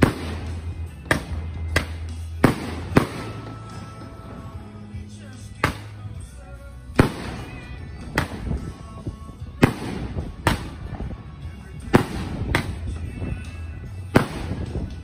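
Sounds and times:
firework bangs: 0.0 - 4.6, 5.6 - 6.0, 7.0 - 8.8, 9.6 - 11.2, 11.8 - 15.0
wind buffeting microphone: 7.9 - 15.0.

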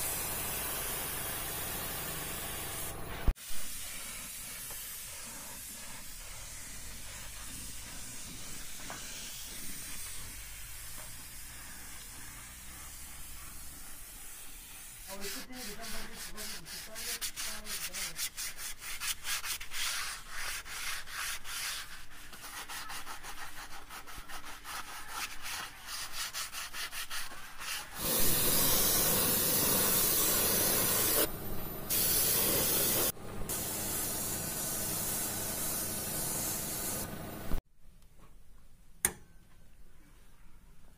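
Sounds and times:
paint spray gun hissing: 0.0 - 16.2, 28.0 - 31.3, 31.9 - 37.6.

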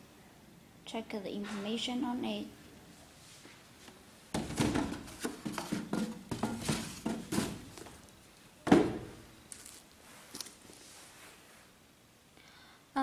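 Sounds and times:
sneaker thumping on box: 4.3 - 8.0, 8.6 - 9.2
cardboard box rustling: 4.4 - 8.1.

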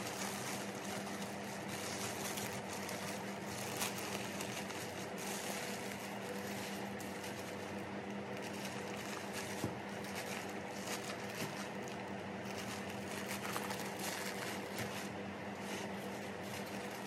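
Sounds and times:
plastic bag rustling: 0.0 - 17.0.

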